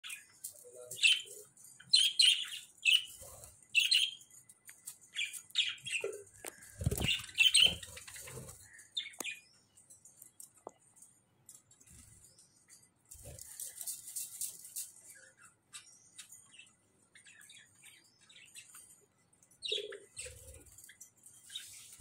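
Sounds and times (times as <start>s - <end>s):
budgerigars chirping: 0.9s - 4.2s, 5.2s - 9.4s, 19.6s - 20.5s.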